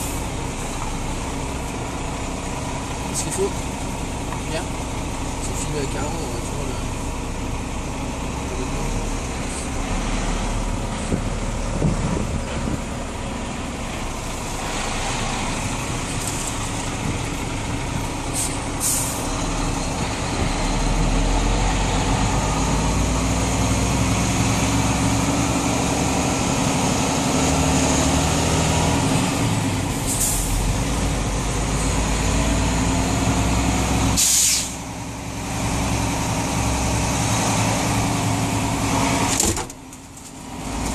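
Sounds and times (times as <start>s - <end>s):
truck engine running: 0.0s - 40.9s
air hisses: 34.2s - 34.8s.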